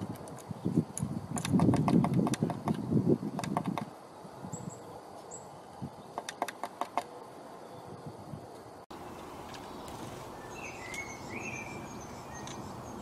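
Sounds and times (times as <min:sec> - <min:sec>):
bird tapping on wood: 0:01.4 - 0:02.8, 0:03.4 - 0:03.9, 0:06.2 - 0:07.1
bird high peeps: 0:09.7 - 0:13.0.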